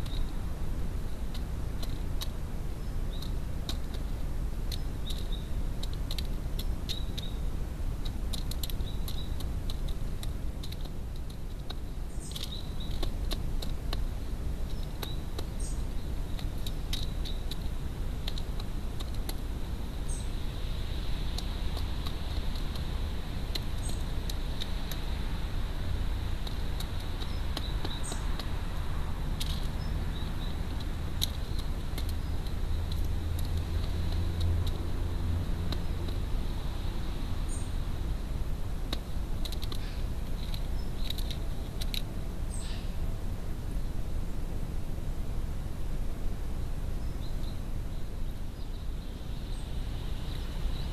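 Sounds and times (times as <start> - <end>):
steady low rumble: 0.0 - 50.9
beak tapping plastic tray: 26.4 - 28.6.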